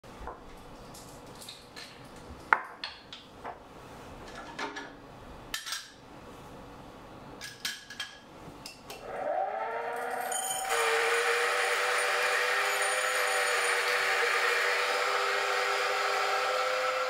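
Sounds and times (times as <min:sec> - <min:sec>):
grinder motor whine: 0:09.0 - 0:17.0.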